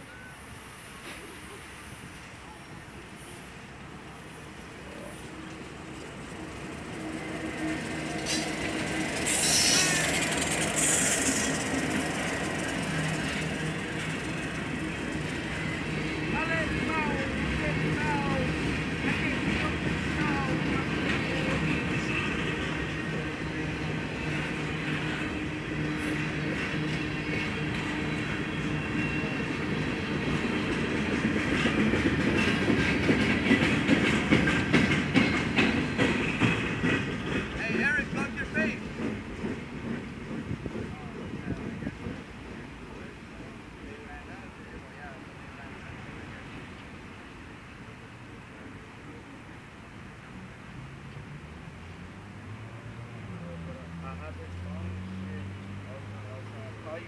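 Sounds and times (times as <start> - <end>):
short hiss bursts: 8.2 - 12.2
rhythmic clatter of knocks: 30.7 - 42.2.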